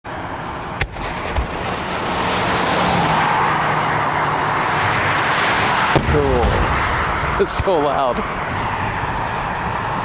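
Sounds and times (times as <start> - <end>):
road noise from passing traffic: 0.0 - 10.0
sharp pop: 0.8 - 1.8.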